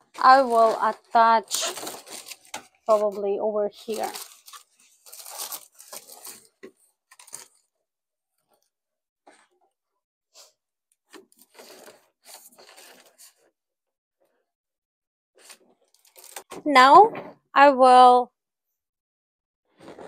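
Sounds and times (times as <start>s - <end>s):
balloons rustling and crinkling: 0.0s - 7.7s, 11.1s - 13.5s, 15.4s - 16.6s, 19.7s - 20.0s.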